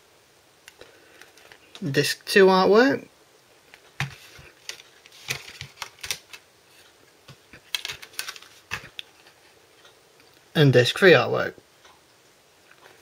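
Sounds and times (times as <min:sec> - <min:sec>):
plastic disc trays clicking: 0:04.0 - 0:06.4, 0:07.6 - 0:09.0.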